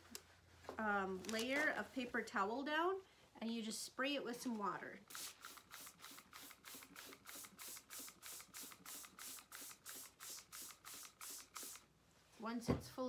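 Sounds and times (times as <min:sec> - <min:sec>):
spray bottle spritzing: 0:05.1 - 0:11.9.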